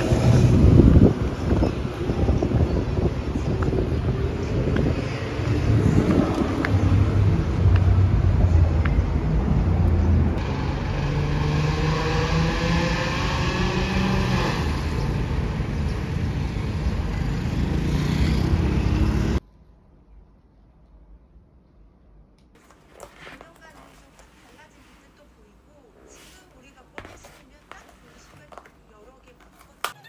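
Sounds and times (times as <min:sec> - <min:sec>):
vehicle accelerating past: 0:00.0 - 0:01.6, 0:04.1 - 0:19.4
wind on microphone: 0:00.0 - 0:10.4
city street traffic: 0:00.0 - 0:20.2.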